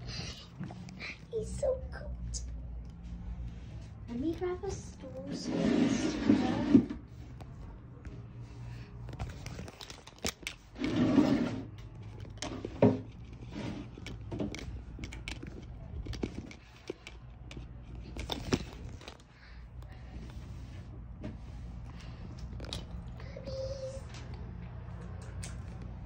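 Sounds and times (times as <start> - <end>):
scraping rustle: 3.5 - 7.3, 9.2 - 14.8.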